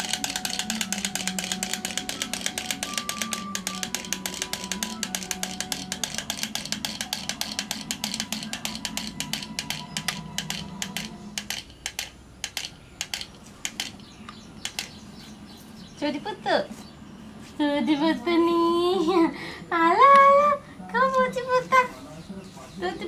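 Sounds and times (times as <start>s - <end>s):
wind-up toy clicking: 0.0s - 15.0s.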